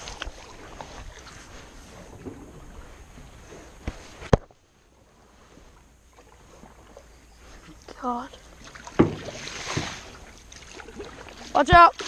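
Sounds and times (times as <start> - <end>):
paddle in water: 0.0 - 12.0
knocks on metal canoe hull: 8.9 - 10.0.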